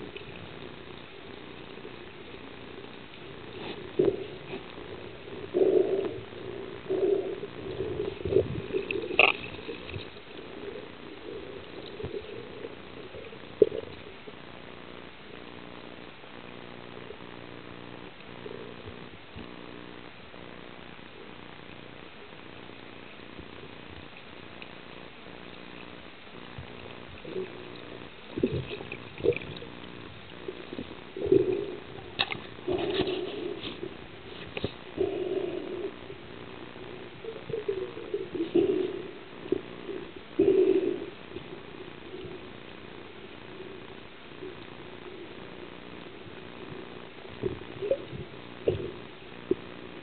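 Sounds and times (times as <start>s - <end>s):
underwater water bubbling: 0.0s - 19.5s, 21.2s - 50.0s
steady low hum: 0.0s - 50.0s
water sloshing: 7.5s - 14.2s.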